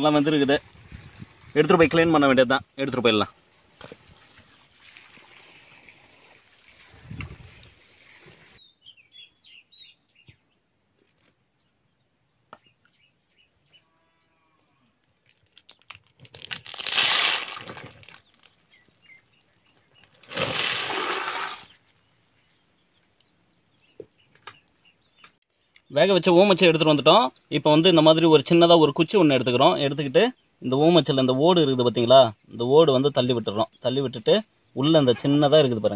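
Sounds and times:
water pouring and splashing: 0:03.8 - 0:08.6, 0:16.6 - 0:18.5, 0:20.2 - 0:21.8
bird chirps: 0:08.6 - 0:10.6, 0:18.2 - 0:20.2.

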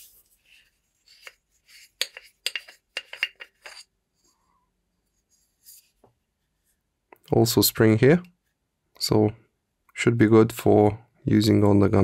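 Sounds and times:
metal threads scraping clicks: 0:01.1 - 0:03.8.

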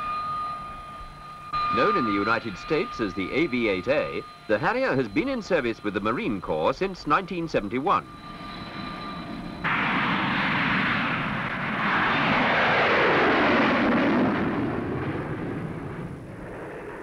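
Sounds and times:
jet engine whine: 0:00.0 - 0:17.0
jet roar on lift-off: 0:08.0 - 0:17.0.

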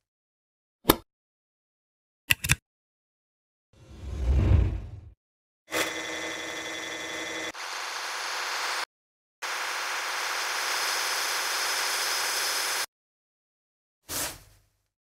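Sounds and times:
nail drill grinding: 0:05.7 - 0:08.8.

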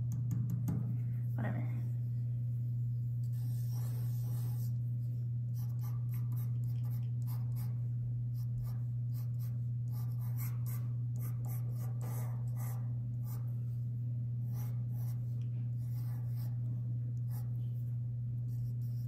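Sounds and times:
steady low hum: 0:00.0 - 0:19.0
pencil scratching on paper: 0:03.3 - 0:04.8, 0:05.6 - 0:07.8, 0:08.4 - 0:13.5, 0:14.5 - 0:17.6, 0:18.5 - 0:19.0.

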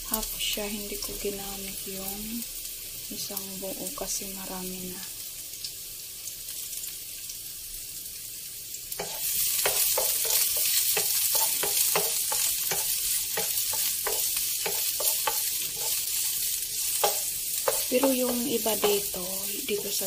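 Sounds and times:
onions sizzling in pan: 0:00.0 - 0:20.0
wooden spoon scraping pan: 0:09.0 - 0:20.0.

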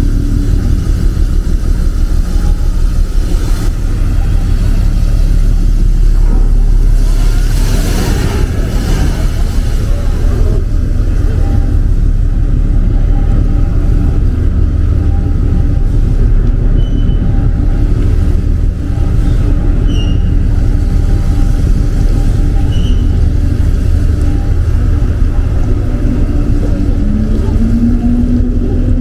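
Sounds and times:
boat engine droning: 0:00.0 - 0:29.0.

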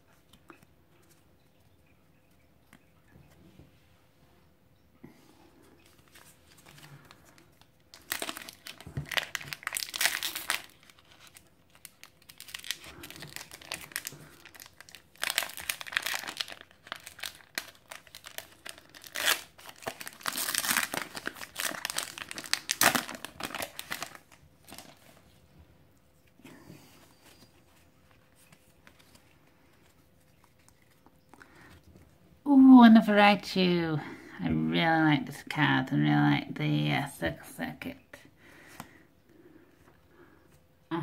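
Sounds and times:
foil wrapper crinkling: 0:05.8 - 0:25.4.

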